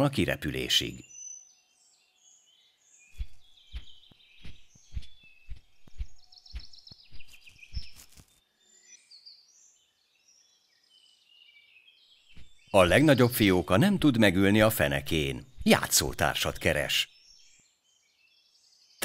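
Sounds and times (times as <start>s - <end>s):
songbirds chirping: 0.0s - 19.0s
soft wingbeat thumps: 3.2s - 7.9s.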